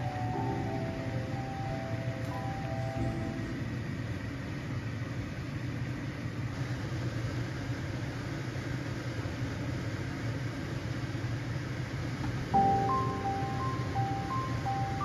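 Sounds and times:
bright mallet melody music: 0:00.0 - 0:04.4, 0:12.6 - 0:15.0.

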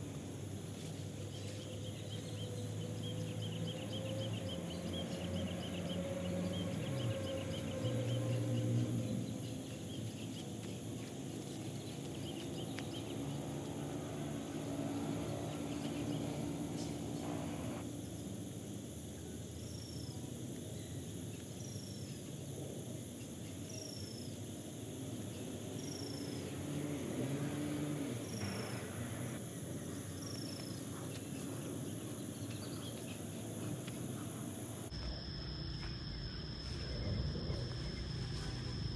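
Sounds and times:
insects droning: 0:00.0 - 0:38.9
low hum: 0:34.8 - 0:38.9.

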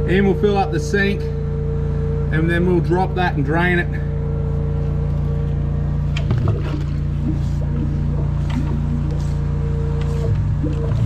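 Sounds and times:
drain jetter humming: 0:00.0 - 0:11.0.

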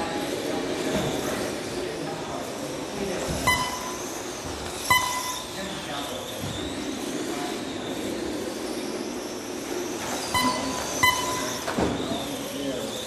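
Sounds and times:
rc cars whirring: 0:00.0 - 0:13.0
short electronic beeps: 0:03.4 - 0:04.1, 0:04.8 - 0:05.6, 0:10.3 - 0:11.7.

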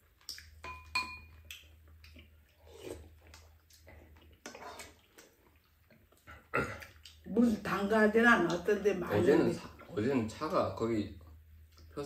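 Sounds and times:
soft eating sounds: 0:00.0 - 0:07.7, 0:11.1 - 0:12.0
metal spoon clinking dish: 0:00.6 - 0:01.4.

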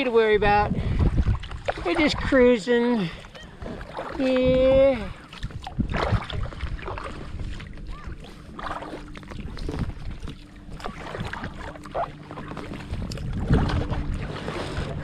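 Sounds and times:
water running off paddle: 0:00.0 - 0:15.0
paddle splashing into water: 0:00.9 - 0:02.5, 0:03.3 - 0:04.5, 0:05.2 - 0:15.0.

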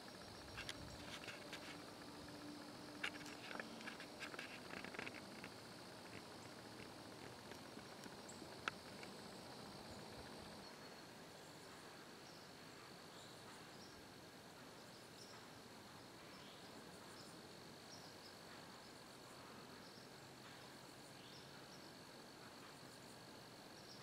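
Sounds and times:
small chirps: 0:00.0 - 0:10.8
insects trilling: 0:00.0 - 0:24.0.

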